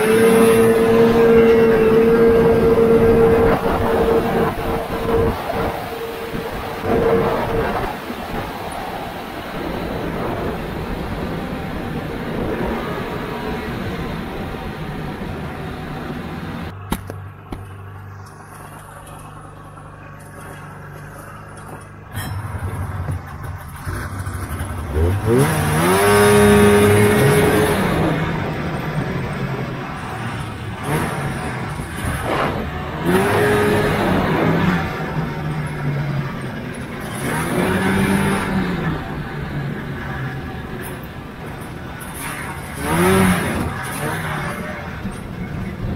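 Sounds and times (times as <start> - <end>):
snowmobile engine running: 0.0 - 45.9.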